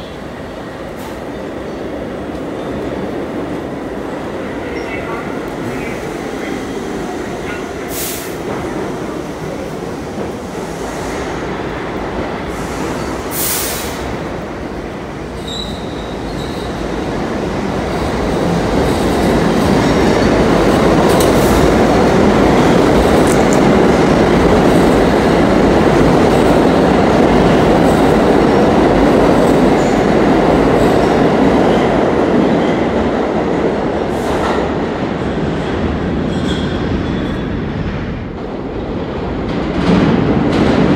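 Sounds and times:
subway train rumbling past: 0:00.0 - 0:40.9.

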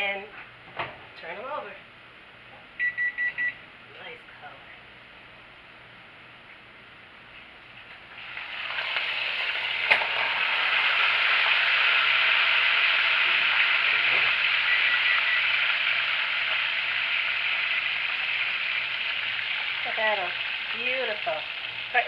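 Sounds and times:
chicken sizzling in oil: 0:08.1 - 0:22.0.

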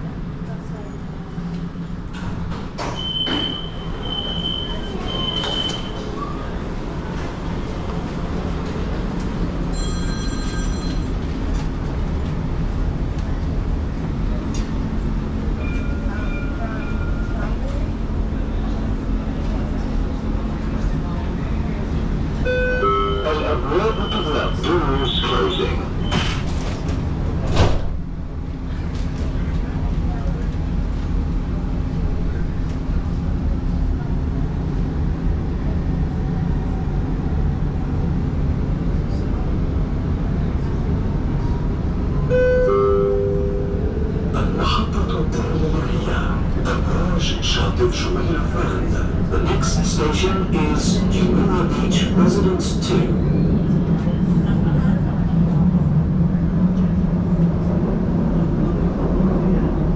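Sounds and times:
tram rumbling on rails: 0:00.0 - 0:59.9
high ringing tone: 0:09.7 - 0:11.1, 0:22.5 - 0:24.2, 0:42.3 - 0:44.4.

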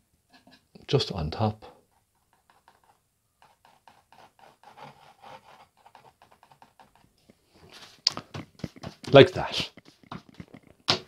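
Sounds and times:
palette knife scraping paint on canvas: 0:01.8 - 0:10.6.

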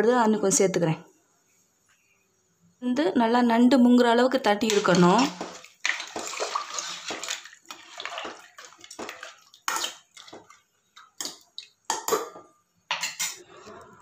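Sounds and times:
soup sloshing: 0:04.6 - 0:11.8.

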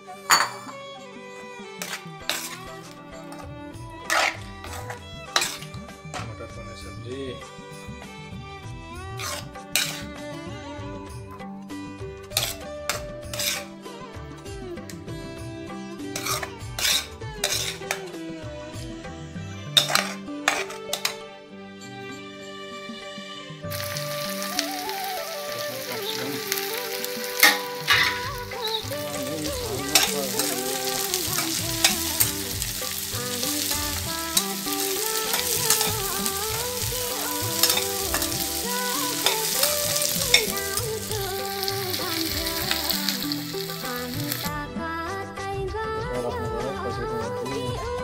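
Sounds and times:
vegetables sizzling in oil: 0:01.8 - 0:06.0, 0:09.2 - 0:10.1, 0:12.3 - 0:13.7, 0:16.2 - 0:18.0, 0:19.8 - 0:21.2, 0:23.7 - 0:44.6
metal spatula scraping a pan: 0:01.8 - 0:06.3, 0:09.2 - 0:10.1, 0:12.3 - 0:13.8, 0:16.2 - 0:18.1, 0:19.8 - 0:21.2, 0:26.4 - 0:44.0.

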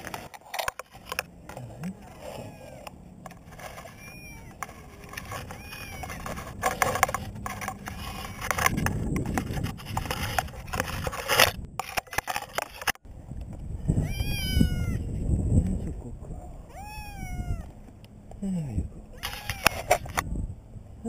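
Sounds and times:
faint short cries: 0:03.8 - 0:04.6, 0:19.1 - 0:20.0.

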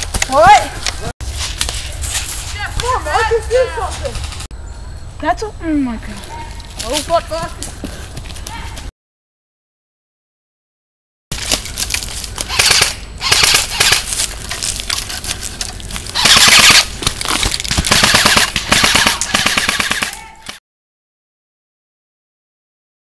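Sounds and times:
airsoft gun firing bursts: 0:12.5 - 0:14.1, 0:16.2 - 0:16.9, 0:17.8 - 0:20.6.

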